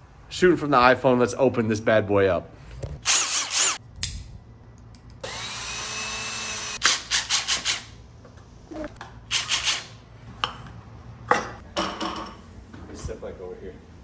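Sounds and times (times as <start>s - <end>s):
cordless drill spinning: 3.0s - 3.8s, 5.2s - 7.9s.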